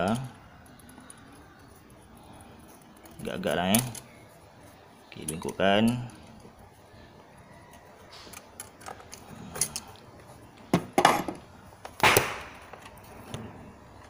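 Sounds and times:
pliers bending steel wire: 0.0s - 4.2s, 5.1s - 6.6s.

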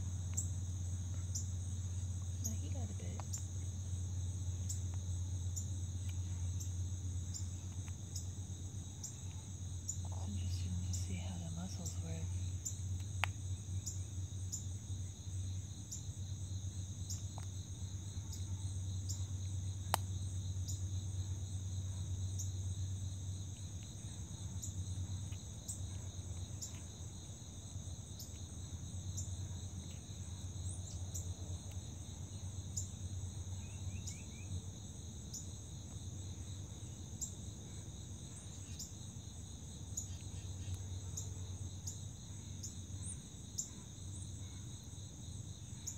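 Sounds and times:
crickets trilling: 0.0s - 45.9s
low steady hum: 0.0s - 45.9s.

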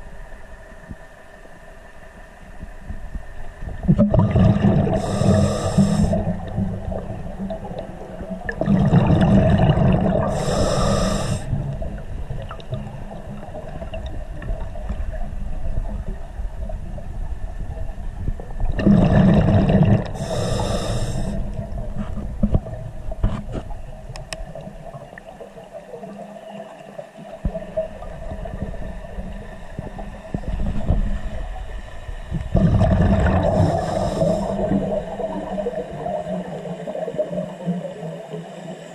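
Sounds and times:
low underwater rumble: 0.0s - 38.0s
exhaled bubbles rumbling: 2.6s - 38.5s
regulator breathing hiss: 4.9s - 6.5s, 10.3s - 11.6s, 20.1s - 21.6s, 33.4s - 34.9s.

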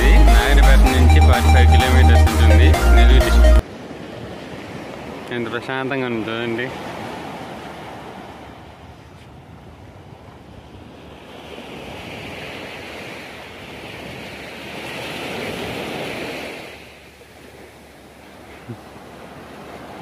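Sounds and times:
waves washing on beach: 3.6s - 20.0s
wind buffeting microphone: 6.9s - 16.5s.

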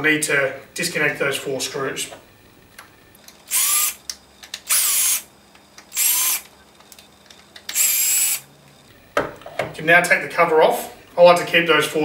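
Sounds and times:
power drill motor whine: 3.5s - 4.0s, 4.6s - 5.3s, 5.9s - 6.5s, 7.7s - 9.2s.

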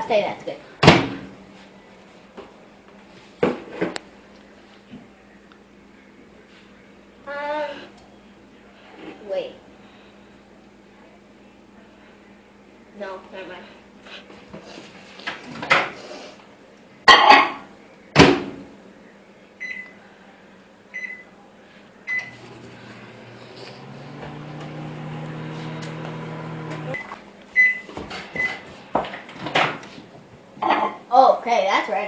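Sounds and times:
microwave oven humming: 0.0s - 31.1s
microwave keypad beeps: 19.6s - 20.0s, 20.9s - 21.3s, 22.1s - 22.4s, 27.0s - 28.6s.

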